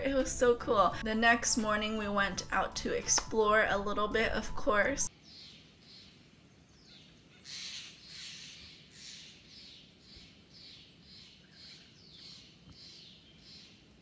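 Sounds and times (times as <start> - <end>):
birds singing: 5.2 - 13.8.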